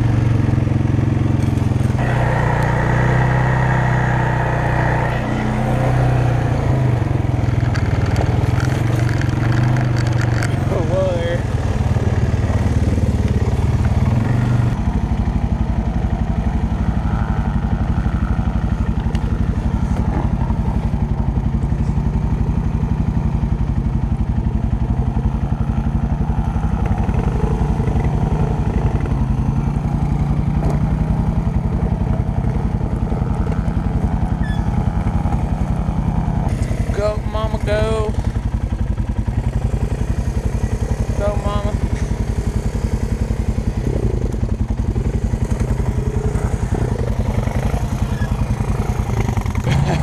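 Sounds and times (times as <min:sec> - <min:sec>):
atv engine idling: 0:00.0 - 0:50.0.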